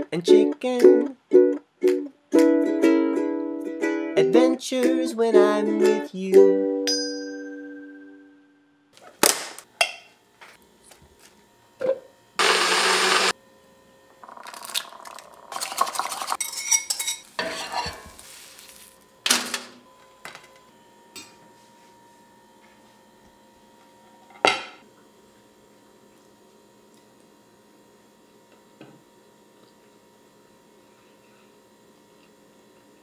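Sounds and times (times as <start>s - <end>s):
ukulele chord: 0.3s - 8.1s
stirring and frying: 14.3s - 19.0s
dishes and utensils clinking: 15.6s - 18.2s.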